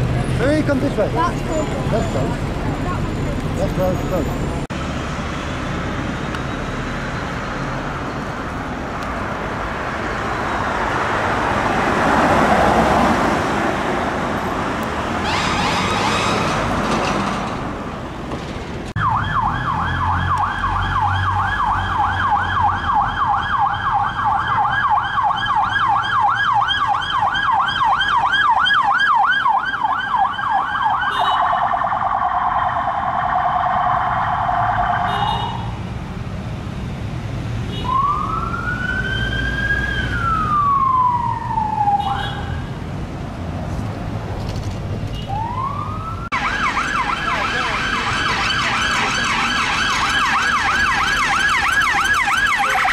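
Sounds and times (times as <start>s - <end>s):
vehicle passing at speed: 9.2s - 17.8s
police siren yelping: 19.0s - 35.2s, 37.9s - 42.4s, 45.3s - 52.9s.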